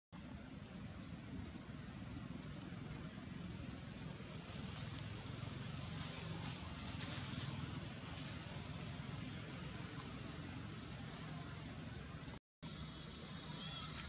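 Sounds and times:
steady low rumble: 0.2 - 13.4
dry leaves rustling and crackling: 3.8 - 10.3.

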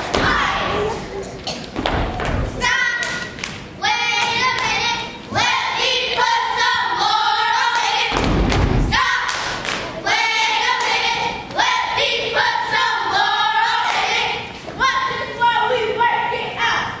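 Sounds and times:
stomps on wooden stage floor: 1.8 - 2.5, 8.1 - 9.2
girls singing in unison: 2.6 - 8.2, 8.8 - 17.0.

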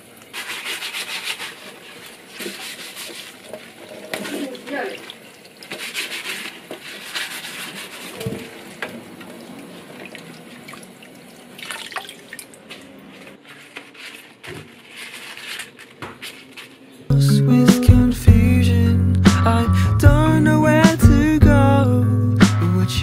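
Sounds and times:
sponge rubbing wet leaves: 0.3 - 10.0, 12.6 - 17.0
water splashing in metal basin: 0.3 - 12.8
water dripping: 8.5 - 12.7.

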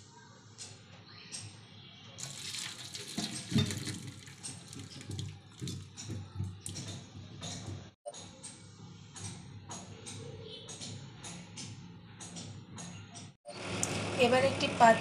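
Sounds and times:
water splashing into a sink: 2.2 - 6.9.

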